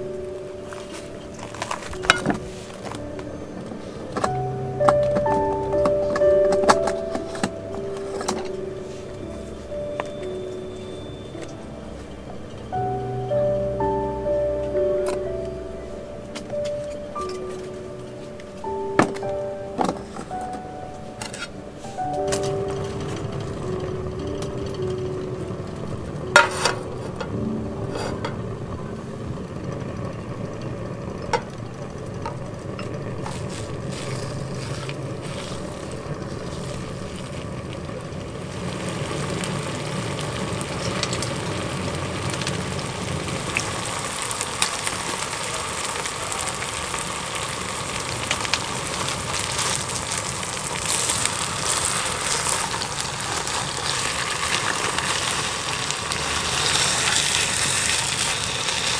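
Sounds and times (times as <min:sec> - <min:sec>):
low steady hum: 0:00.0 - 0:58.9
steak sizzling in a frying pan: 0:38.5 - 0:58.9.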